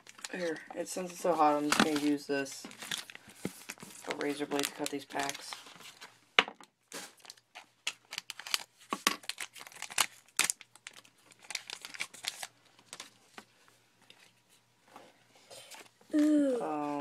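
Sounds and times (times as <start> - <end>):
wrappers crinkling: 0.0 - 6.1, 6.9 - 13.3.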